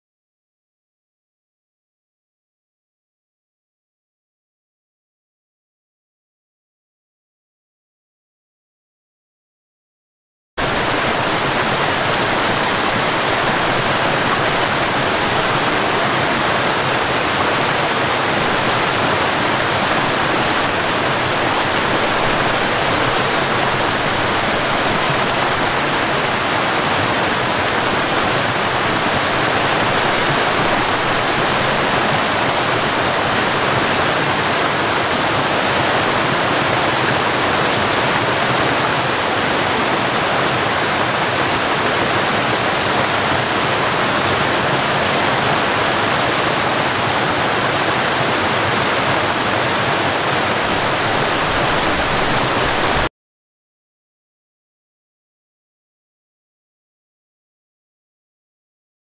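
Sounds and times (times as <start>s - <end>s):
waterfall rushing: 10.6s - 53.1s.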